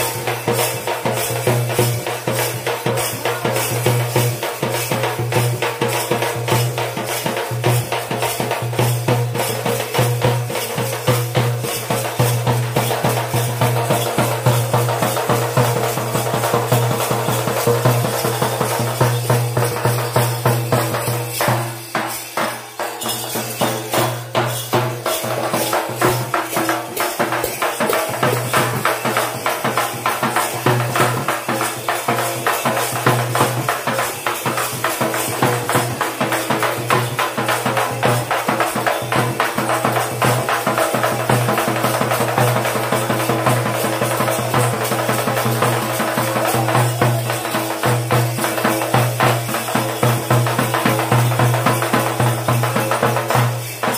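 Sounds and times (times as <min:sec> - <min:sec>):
frame drums beaten fast: 0:00.0 - 0:53.9.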